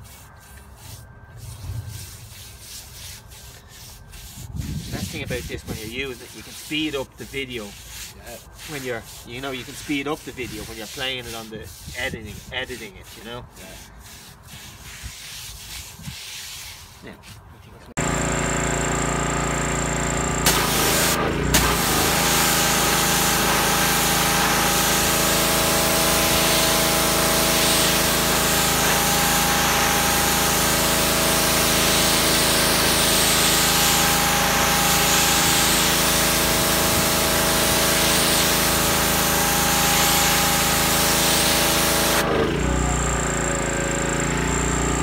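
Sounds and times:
water jet spraying on tile: 1.9 - 17.0, 18.0 - 43.3
pressure washer motor humming: 18.0 - 45.0.

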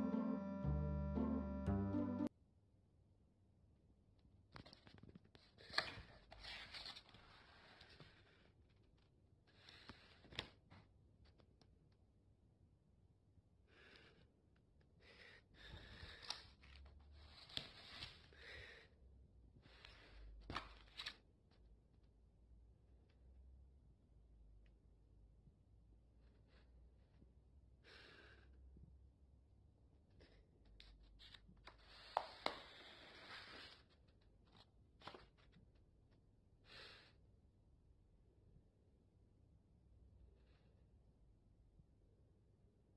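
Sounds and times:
paper rustling: 4.6 - 8.2, 16.1 - 18.3, 20.4 - 21.2, 30.8 - 35.6.

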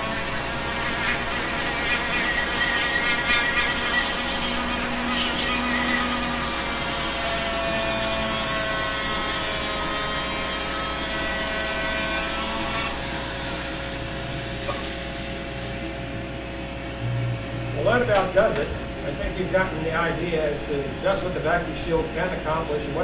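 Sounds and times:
rotary tool motor whine: 0.0 - 10.8.

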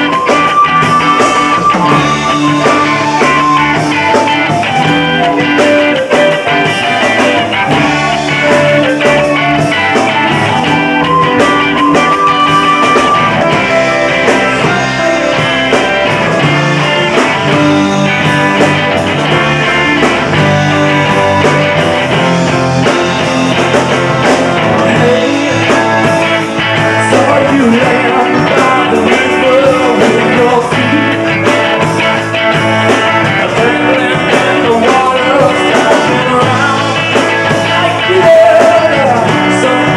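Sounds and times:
electric guitar: 0.0 - 39.9
keyboards: 0.0 - 39.9
live rock band: 0.0 - 39.9.

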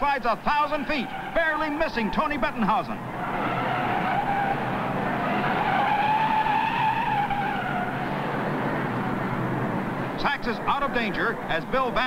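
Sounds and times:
race cars running: 0.0 - 12.0
tire squeal: 0.5 - 9.7.

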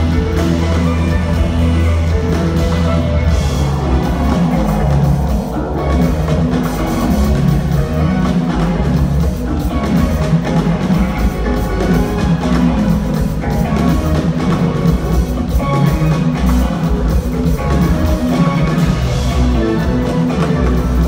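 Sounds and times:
live jazz band playing: 0.0 - 21.0.

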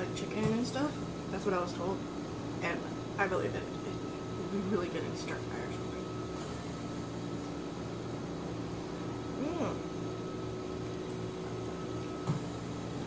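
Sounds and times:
mechanical hum: 0.0 - 13.0
person humming while chewing: 9.4 - 9.8.

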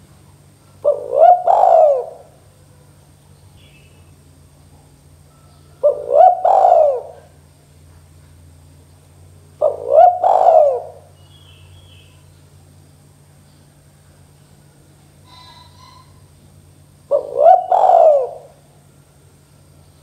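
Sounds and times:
dove cooing: 0.7 - 3.0, 5.3 - 7.4, 9.6 - 11.8, 15.2 - 16.3, 17.0 - 18.9.

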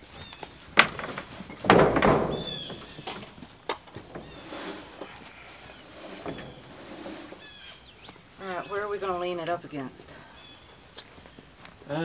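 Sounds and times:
crickets chirping: 0.0 - 12.0
loud rustling thump: 0.7 - 5.1.

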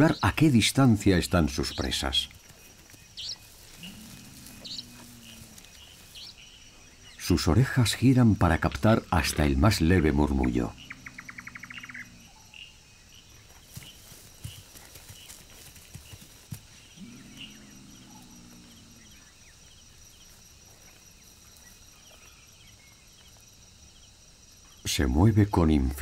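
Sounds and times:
night insects chirping: 0.0 - 26.0
footsteps on dry grass: 2.3 - 6.4, 13.4 - 16.8.

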